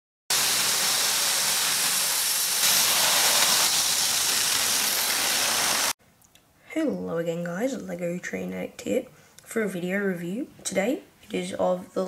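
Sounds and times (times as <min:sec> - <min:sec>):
steady even hiss: 0:00.3 - 0:06.0.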